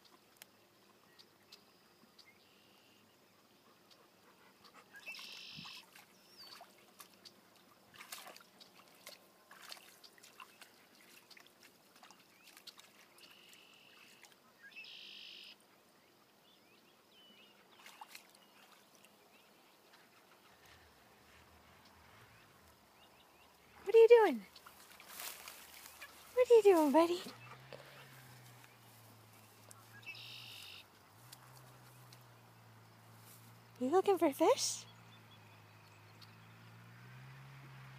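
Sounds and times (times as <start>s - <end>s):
dog splashing in stream: 4.9s - 14.4s, 17.6s - 21.6s, 23.6s - 32.1s.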